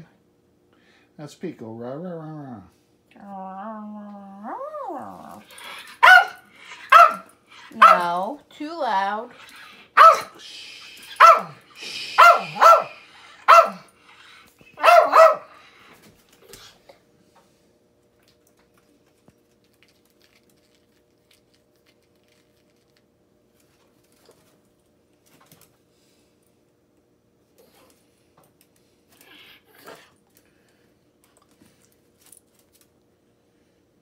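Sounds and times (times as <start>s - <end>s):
small dog barking: 5.8s - 8.2s, 9.9s - 10.4s, 11.1s - 11.6s, 12.2s - 13.9s, 14.8s - 15.6s.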